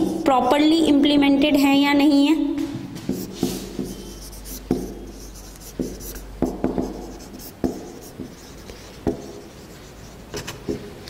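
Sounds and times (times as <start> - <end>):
marker writing on whiteboard: 3.0 - 11.0
marker tip tapping board: 3.1 - 9.4.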